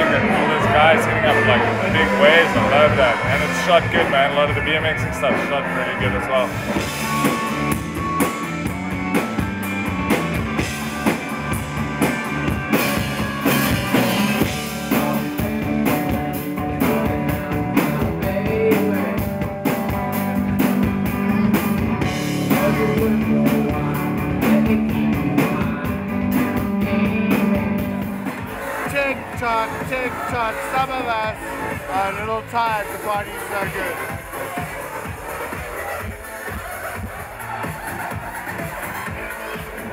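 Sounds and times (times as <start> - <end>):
electric guitar: 0.0 - 30.3
bass guitar: 0.0 - 39.9
drum kit beat: 0.0 - 39.9
person singing: 16.6 - 19.5, 21.2 - 27.7.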